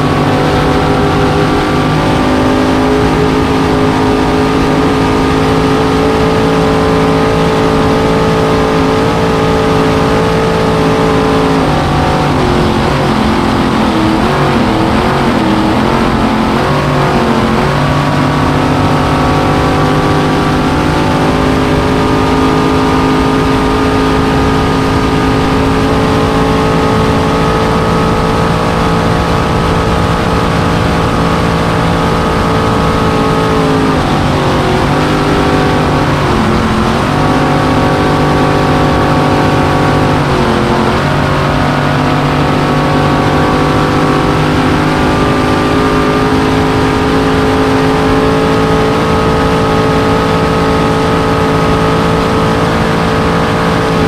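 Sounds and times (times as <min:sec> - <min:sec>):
race boat engine running hard: 0:00.0 - 0:54.0.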